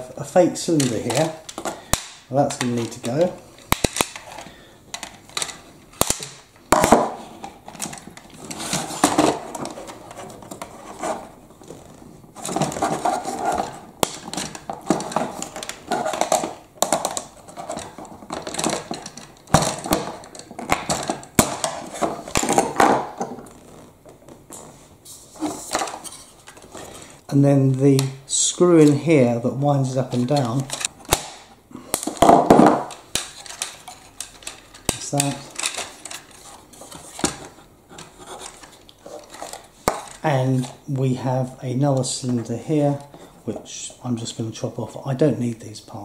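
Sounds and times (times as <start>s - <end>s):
screwdriver clicking and scraping plastic: 12.4s - 22.8s, 32.9s - 40.7s
plastic pieces rattling on table: 32.1s - 37.4s.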